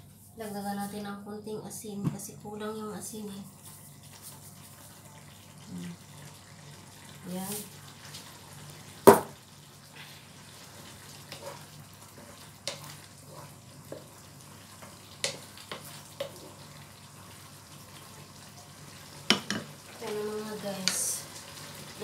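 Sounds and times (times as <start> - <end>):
food sizzling in a pan: 3.0 - 22.0
wooden spatula tapping pan: 12.6 - 13.0, 15.2 - 16.4.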